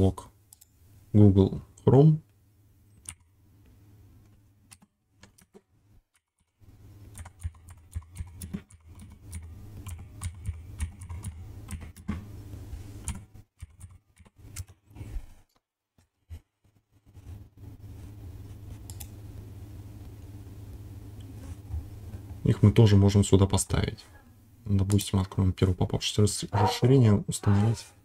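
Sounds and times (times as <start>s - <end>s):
computer keyboard typing: 4.7s - 12.1s, 13.0s - 14.8s.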